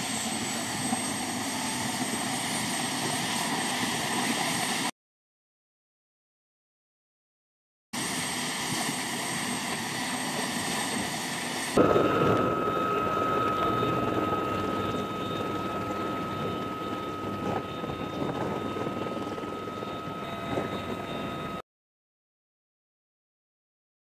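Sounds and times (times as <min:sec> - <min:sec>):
helicopter engines and rotor: 0:00.0 - 0:04.9, 0:08.0 - 0:21.6
high turbine whine: 0:00.0 - 0:04.9, 0:08.0 - 0:21.6.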